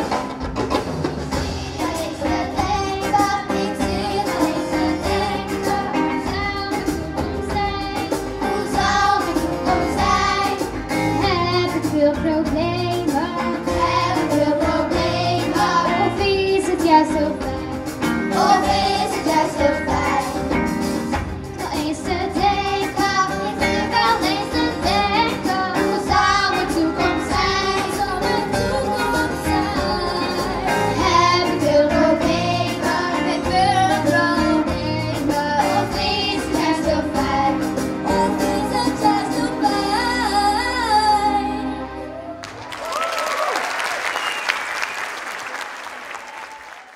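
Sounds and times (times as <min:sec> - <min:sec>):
live band with steady beat: 0:00.0 - 0:41.9
children singing into microphones: 0:01.5 - 0:17.6, 0:21.6 - 0:41.4.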